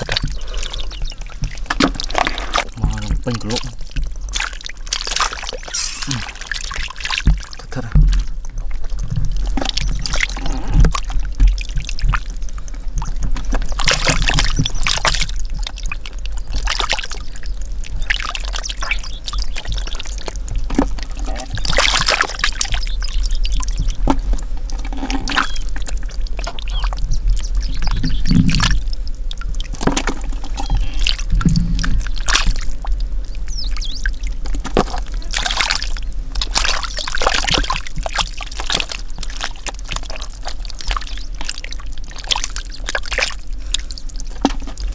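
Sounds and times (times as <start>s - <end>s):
hands sloshing through mud: 0.0s - 7.9s, 13.5s - 15.4s, 18.0s - 23.0s, 29.7s - 32.9s, 33.8s - 44.9s
steady low rumble: 22.4s - 44.9s.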